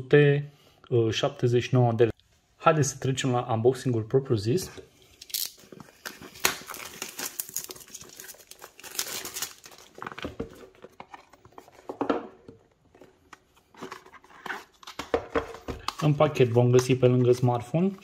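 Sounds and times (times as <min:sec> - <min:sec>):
plastic shrink-wrap tearing and crinkling: 0:05.3 - 0:10.1.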